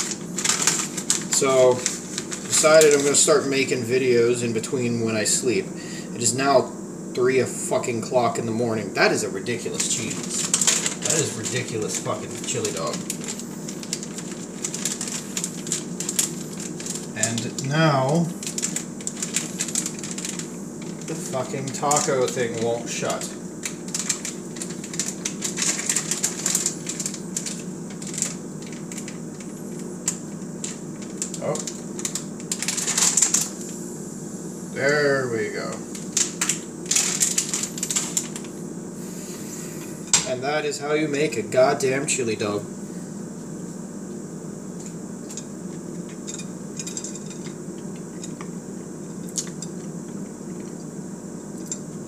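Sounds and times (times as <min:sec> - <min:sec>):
plastic bag crinkling: 0:00.0 - 0:03.7, 0:09.1 - 0:33.7, 0:34.8 - 0:38.6
steady low hum: 0:00.0 - 0:52.0
faint clicks and crackles: 0:18.4 - 0:33.8, 0:35.7 - 0:38.5.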